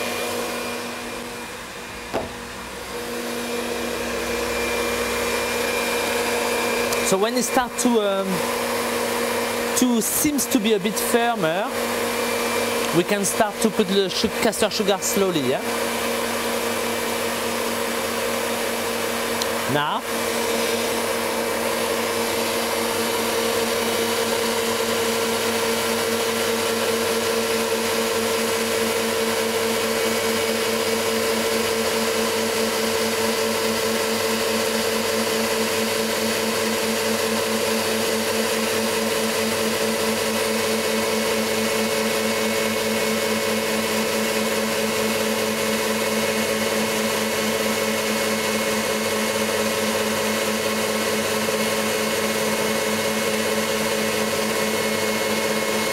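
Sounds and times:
stand mixer motor humming: 0:00.0 - 0:55.9.

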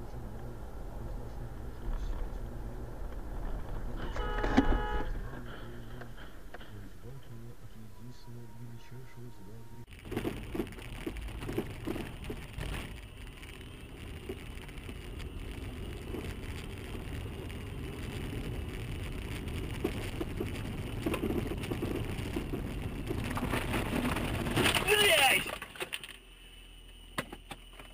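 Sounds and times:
vehicle road rumble: 0:00.0 - 0:27.9
small knocks and rattles: 0:09.9 - 0:13.0.

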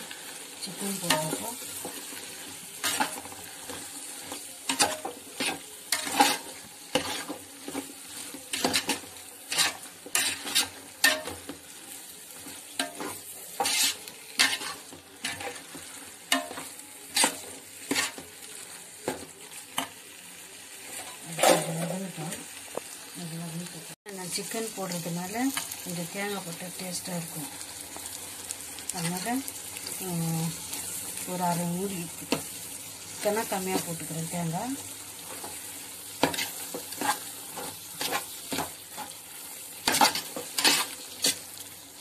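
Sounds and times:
hot oil sizzling: 0:00.0 - 0:42.0
spoon scraping a pot: 0:08.5 - 0:11.3, 0:12.8 - 0:15.7.

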